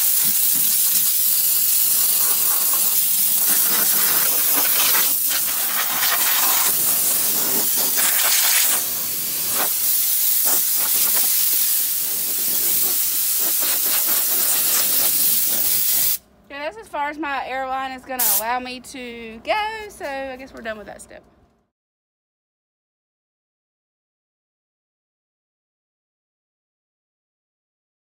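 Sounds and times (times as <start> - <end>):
air blow gun hissing: 0.0 - 16.2, 18.2 - 18.5.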